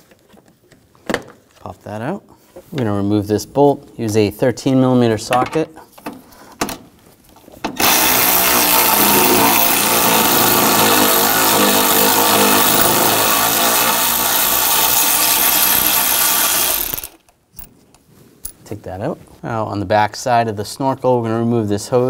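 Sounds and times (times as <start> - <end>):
electric ratchet spinning bolt: 7.8 - 17.3.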